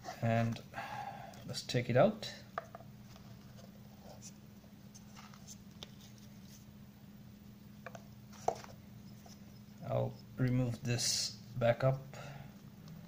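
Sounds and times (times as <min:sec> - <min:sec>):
steady low hum: 0:00.0 - 0:13.0
watch and box handling: 0:07.8 - 0:09.7.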